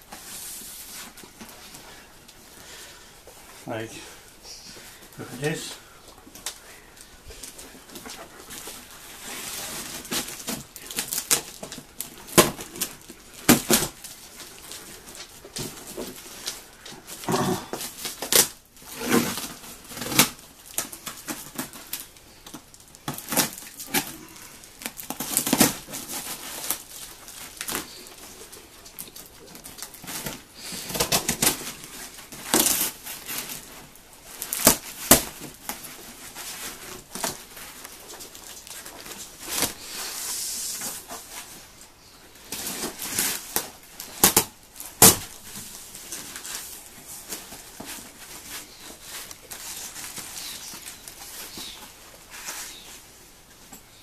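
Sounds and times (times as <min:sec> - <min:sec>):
cardboard tearing and crackling: 0:07.4 - 0:41.6, 0:42.4 - 0:53.0
packing tape ripping: 0:08.6 - 0:41.1, 0:42.4 - 0:52.8.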